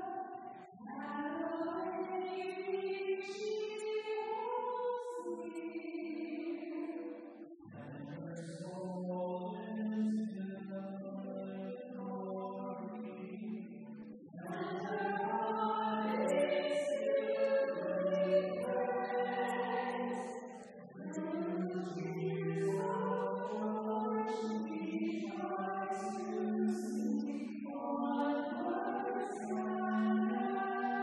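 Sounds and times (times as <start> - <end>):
group singing a hymn: 7.7 - 31.0.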